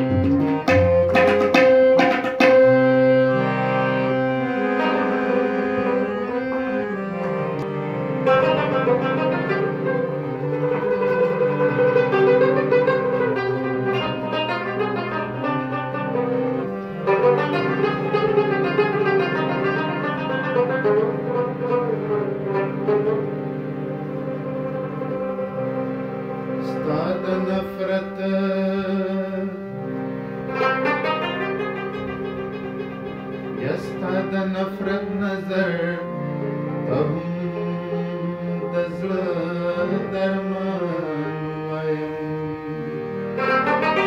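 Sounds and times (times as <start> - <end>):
tabla strokes: 0.0 - 2.9
plucked lute melody: 0.0 - 3.2, 7.3 - 25.5, 30.5 - 37.2, 43.0 - 44.0
harmonium sustained notes: 0.0 - 44.0.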